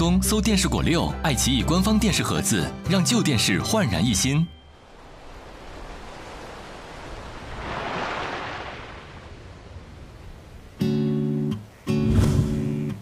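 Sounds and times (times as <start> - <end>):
surf-like rushing noise: 4.7 - 10.8
strummed guitar music: 10.8 - 13.0.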